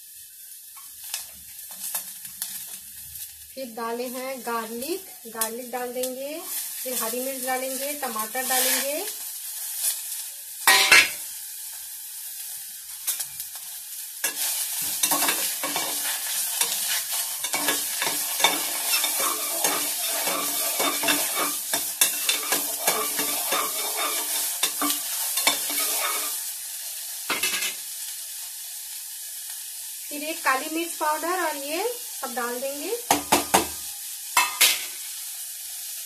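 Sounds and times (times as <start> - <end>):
vegetables sizzling in hot oil: 0.0 - 36.0
metal spatula scraping pot: 14.2 - 26.4.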